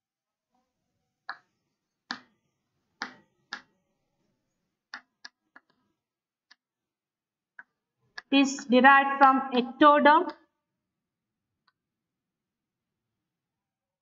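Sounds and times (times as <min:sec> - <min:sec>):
chalk tapping on blackboard: 0:02.1 - 0:02.3, 0:03.0 - 0:03.7.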